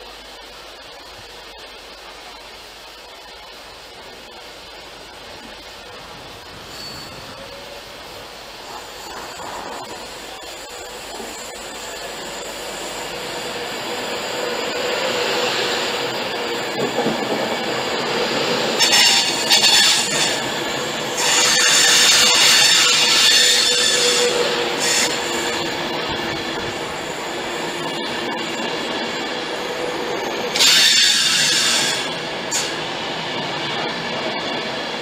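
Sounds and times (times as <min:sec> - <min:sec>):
electric train whine: 0:00.0 - 0:35.0
high-pitched brake squeal: 0:06.6 - 0:07.8, 0:18.8 - 0:25.8, 0:29.1 - 0:32.8.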